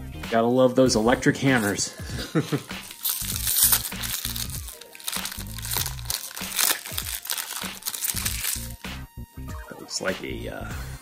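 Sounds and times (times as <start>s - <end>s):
background music with low beat: 0.0s - 11.0s
plastic bag crinkling and tearing: 2.8s - 8.8s.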